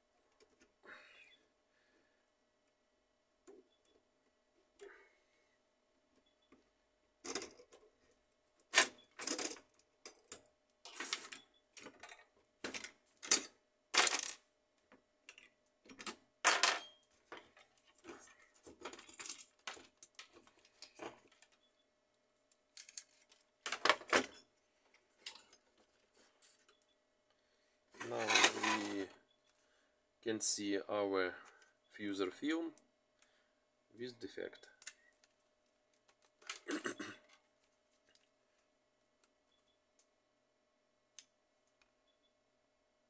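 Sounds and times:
clinks of small metal parts: 8.8s - 14.4s, 15.3s - 17.0s, 18.8s - 21.6s, 22.7s - 24.4s.

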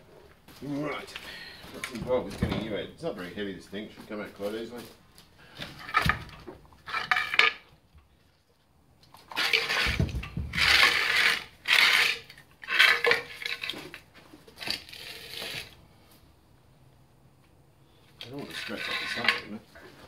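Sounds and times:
metal tools clanking on engine: 18.3s - 19.6s.

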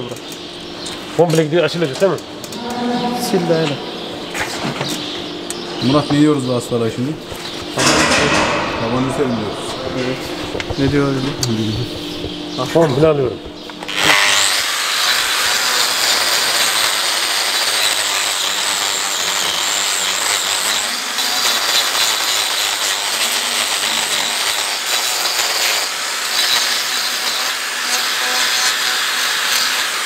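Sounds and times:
angle grinder whining: 1.8s - 5.6s, 13.7s - 30.0s.

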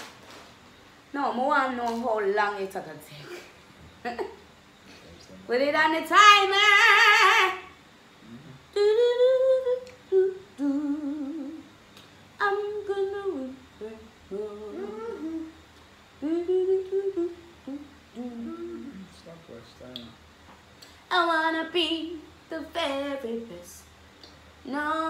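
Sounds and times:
person humming a tune: 8.2s - 11.6s, 13.8s - 15.6s, 16.2s - 19.2s.

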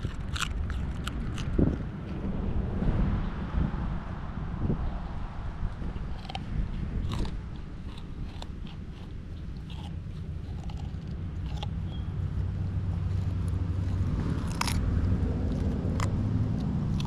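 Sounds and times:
dog crunching a carrot: 0.0s - 2.2s, 5.8s - 17.0s.

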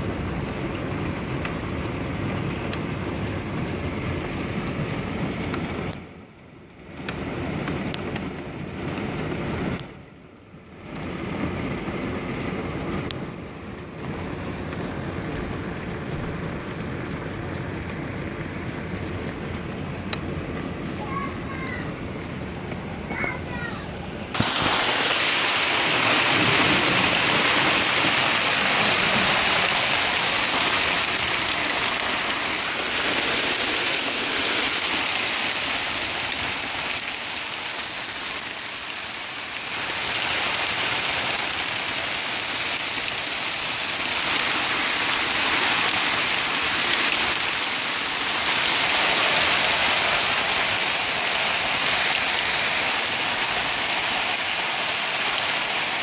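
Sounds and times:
hail pelting roof and concrete: 23.1s - 56.0s.

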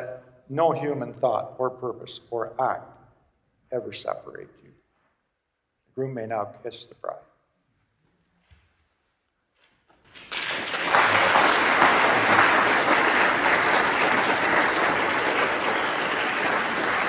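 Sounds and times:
crowd applauding: 10.1s - 17.0s.

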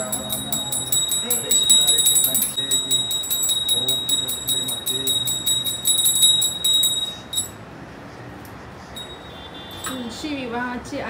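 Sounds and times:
brass hand bell ringing rapidly: 0.0s - 7.6s.

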